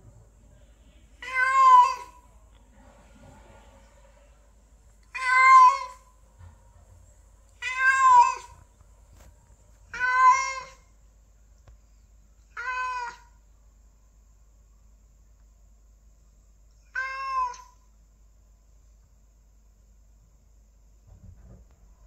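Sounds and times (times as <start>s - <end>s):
cat meowing: 1.2s - 2.2s, 5.1s - 6.1s, 7.6s - 8.6s, 9.9s - 10.9s, 12.5s - 13.4s, 16.8s - 17.8s.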